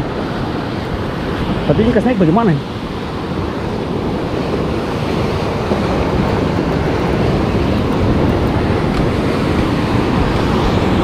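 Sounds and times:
surf breaking over rocks: 0.0s - 11.0s
wind buffeting microphone: 0.0s - 11.0s.

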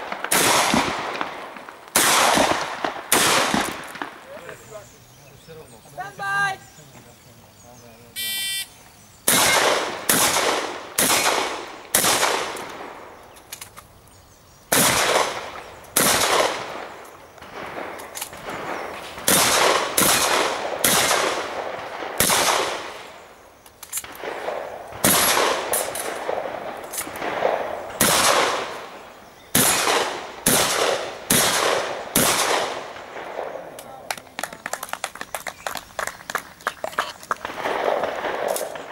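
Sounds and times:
shotgun shots: 0.0s - 4.4s, 9.2s - 13.2s, 14.7s - 23.3s, 24.0s - 34.1s, 37.4s - 38.9s
shot timer beep: 8.2s - 8.7s.

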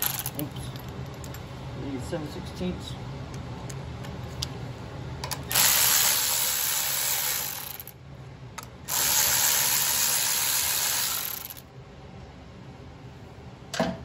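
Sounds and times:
cordless power ratchet running: 5.5s - 7.9s, 8.9s - 11.6s.

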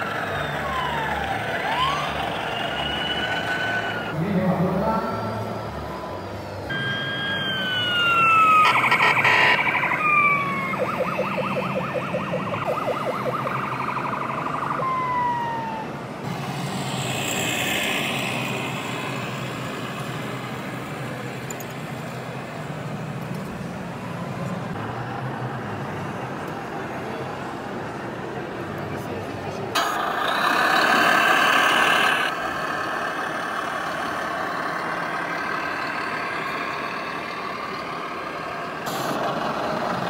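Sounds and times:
electronic siren wailing: 0.0s - 4.2s, 5.9s - 16.1s.

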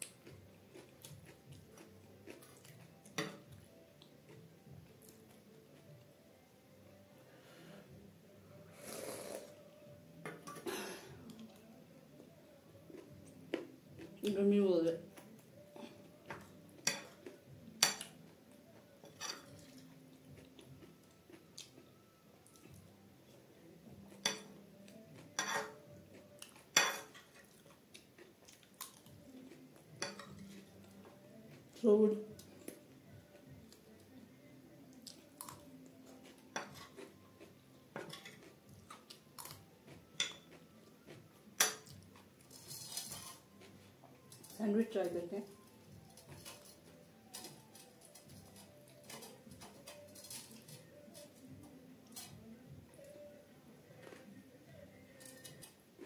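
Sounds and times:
metal spoon clinking on a plate: 16.8s - 18.2s, 19.0s - 19.8s, 24.2s - 24.6s, 25.4s - 25.8s, 26.7s - 27.4s, 30.0s - 30.5s, 40.2s - 40.6s
metal spoon clinking on plate: 19.0s - 19.7s, 25.4s - 25.8s, 26.7s - 27.3s, 40.2s - 40.6s.

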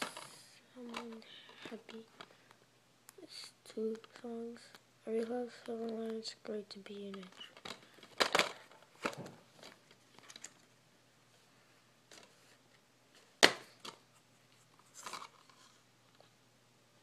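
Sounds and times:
plastic case clicks and rustles: 0.9s - 2.3s, 6.9s - 10.7s, 15.0s - 15.6s.

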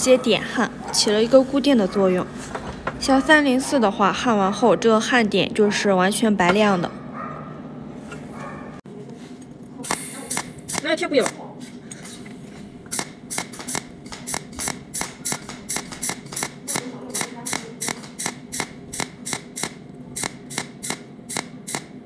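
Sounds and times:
welding torch ticking pulses: 12.9s - 22.0s.

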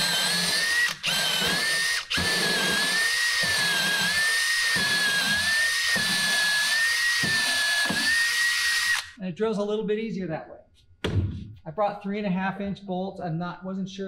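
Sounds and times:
cordless drill boring through wood: 0.0s - 9.2s.

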